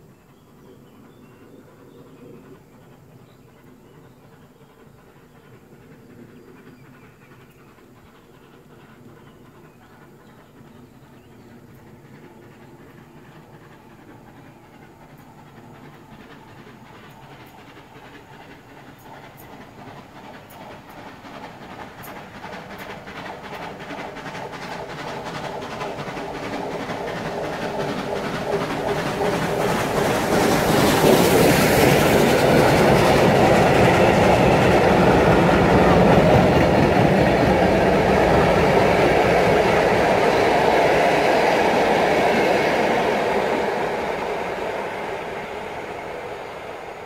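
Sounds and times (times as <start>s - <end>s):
locomotive steam hiss: 0.0s - 47.0s
steam locomotive passing: 0.0s - 47.0s
carriage wheels on rails: 11.7s - 45.0s.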